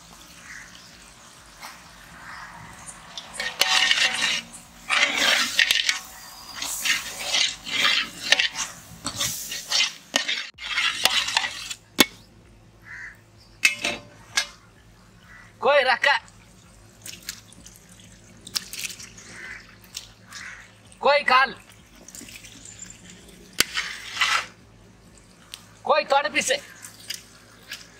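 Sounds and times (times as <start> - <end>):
metal ladle scraping a pot: 3.1 - 12.2, 13.6 - 14.6, 23.6 - 24.6.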